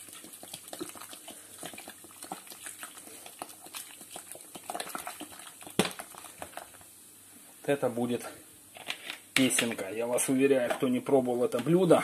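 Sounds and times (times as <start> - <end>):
fizzing crackles: 0.0 - 7.0.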